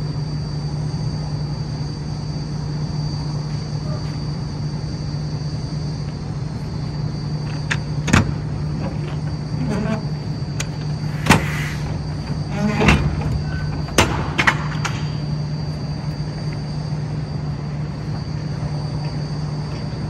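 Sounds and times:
door creaks: 9.6 - 15.1.

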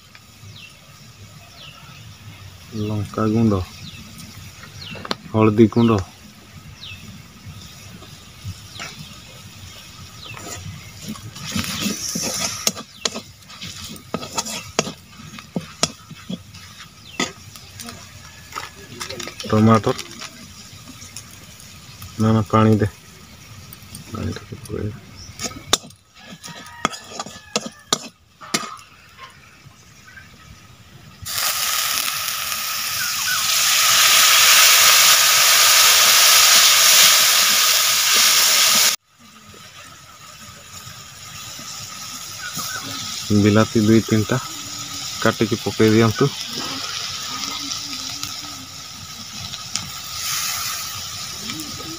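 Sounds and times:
spices sizzling: 0.0 - 51.9
metal spatula scraping a pan: 10.3 - 17.4, 25.4 - 28.9.

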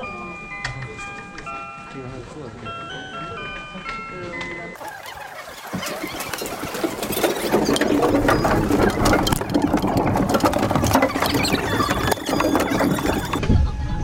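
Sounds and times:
ski boots and poles clattering on metal: 5.6 - 13.4.

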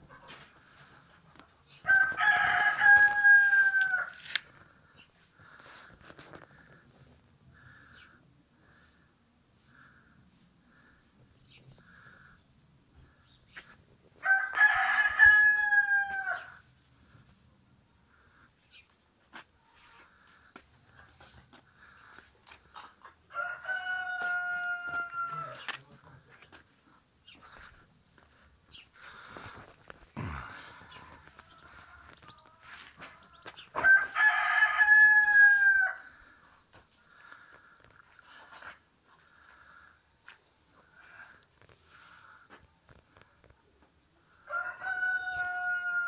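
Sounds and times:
rooster crowing: 1.8 - 4.4, 14.2 - 16.6, 23.3 - 25.7, 33.7 - 36.1, 44.4 - 46.0.

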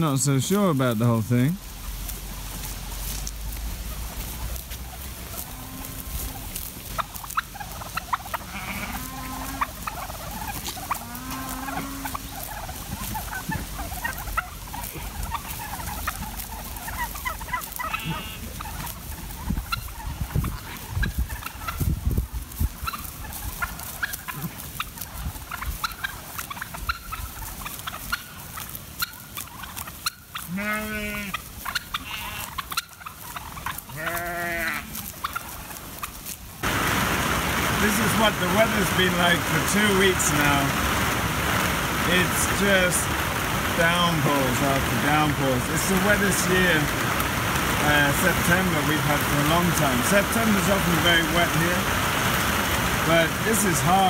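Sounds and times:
turkeys gobbling: 0.0 - 54.0
sheep bleating: 8.4 - 9.6, 11.0 - 12.1, 17.9 - 18.5, 30.4 - 31.3, 32.0 - 32.5, 33.9 - 35.0
low rumbles: 36.6 - 54.0.

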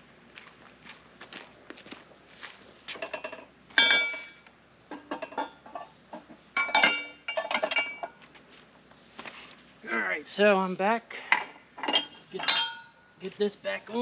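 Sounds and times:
metal rim clinking on steel post: 3.0 - 8.2, 11.3 - 13.1.

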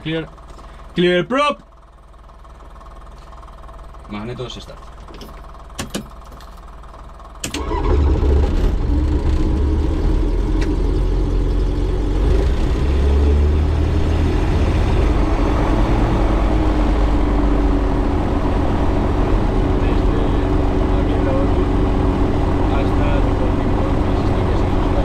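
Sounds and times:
light aircraft piston engine idling: 0.0 - 1.0, 1.6 - 7.8.

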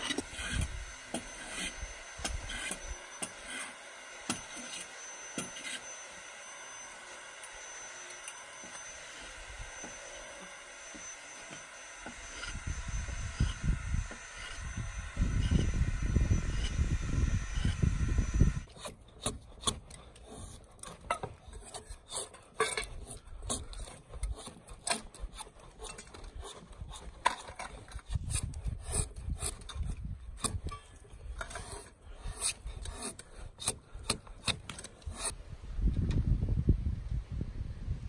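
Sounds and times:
carving blade scraping wood: 0.0 - 35.4.

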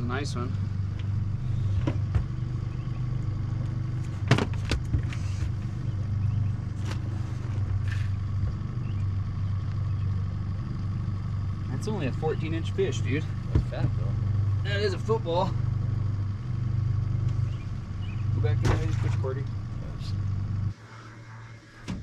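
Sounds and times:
outboard motor droning: 0.0 - 22.0.

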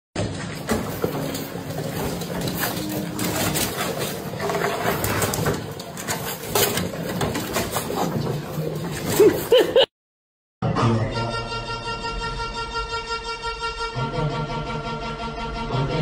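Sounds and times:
paws scrabbling on plastic: 0.2 - 9.6
puppies whimpering and squeaking: 1.0 - 8.2.

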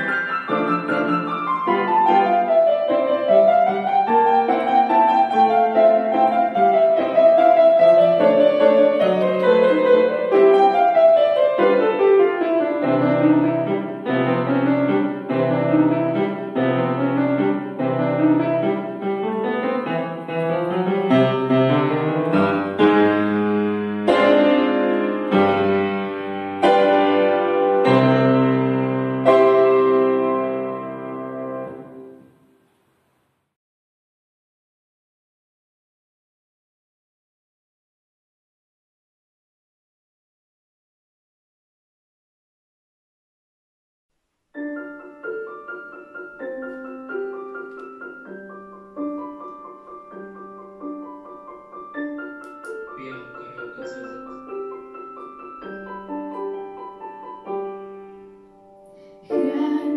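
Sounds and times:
solo grand piano piece: 0.0 - 33.6, 44.5 - 59.9.

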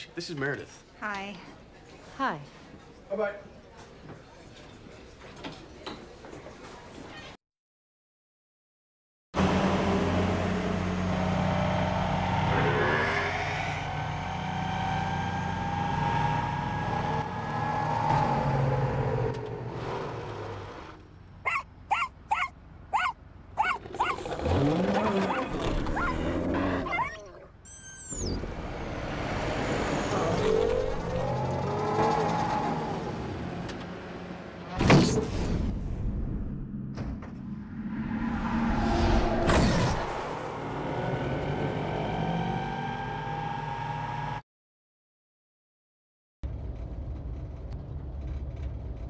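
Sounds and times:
engine and road hum: 9.4 - 34.9, 36.2 - 44.4, 46.4 - 49.0
rising squeal and screeches: 11.9 - 19.4, 37.5 - 43.8.

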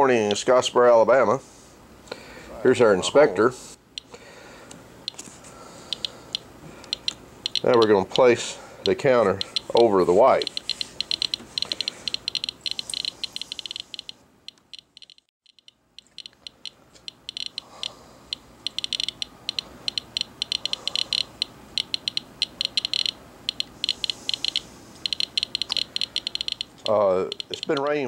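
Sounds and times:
geiger counter clicking: 5.9 - 28.0.

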